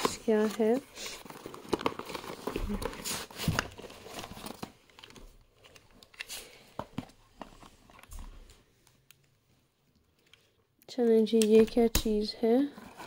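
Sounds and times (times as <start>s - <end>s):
plastic packaging rustling: 0.0s - 8.6s.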